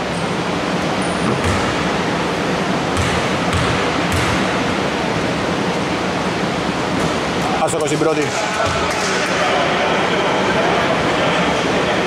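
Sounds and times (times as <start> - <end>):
basketball bouncing on wooden court: 1.3 - 1.9, 3.0 - 4.5.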